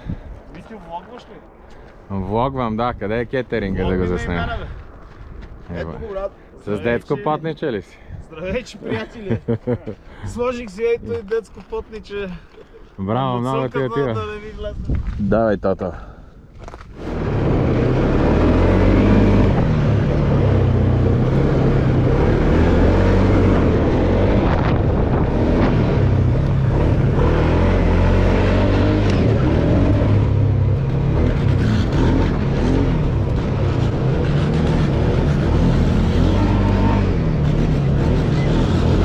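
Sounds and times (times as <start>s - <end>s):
atv engine running: 25.2s - 39.0s.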